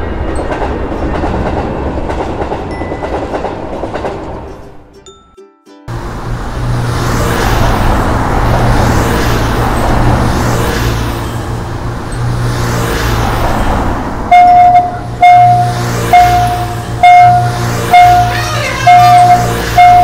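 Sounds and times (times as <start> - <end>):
railroad crossing warning bell: 2.7 - 3.6, 14.3 - 20.0.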